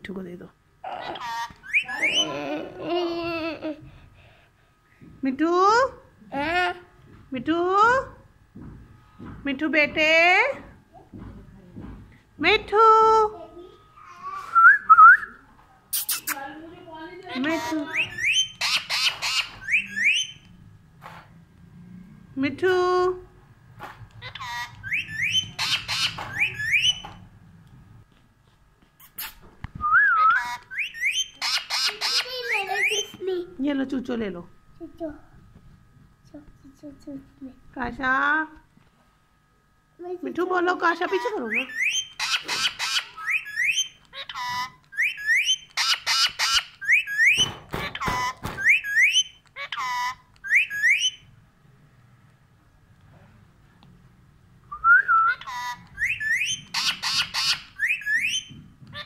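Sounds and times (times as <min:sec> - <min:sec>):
parakeet squawking: 0:00.8 - 0:02.7, 0:17.2 - 0:20.4, 0:24.2 - 0:27.2, 0:30.2 - 0:33.2, 0:40.8 - 0:51.3, 0:55.2 - 0:59.0
parakeet whistling: 0:01.2 - 0:02.4, 0:17.8 - 0:20.4, 0:24.2 - 0:27.2, 0:29.1 - 0:33.2, 0:41.1 - 0:51.3, 0:54.7 - 0:59.0.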